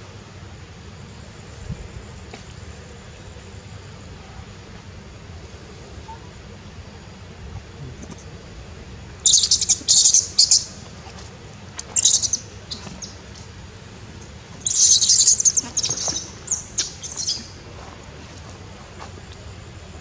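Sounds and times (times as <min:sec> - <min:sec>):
animal rapid high chirps: 0:09.3 - 0:10.7, 0:12.0 - 0:13.1, 0:14.6 - 0:17.5.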